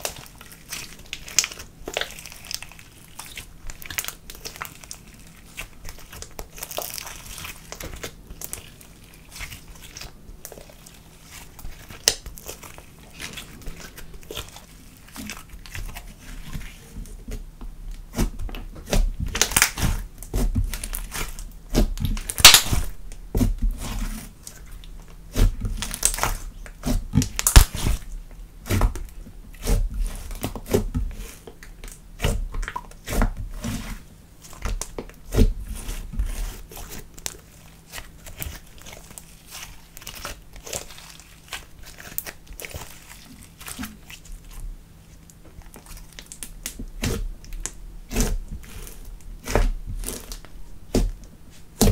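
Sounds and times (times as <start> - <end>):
slime squishing: 0.0 - 51.9
slime clicking and popping: 22.1 - 23.2, 27.2 - 27.8.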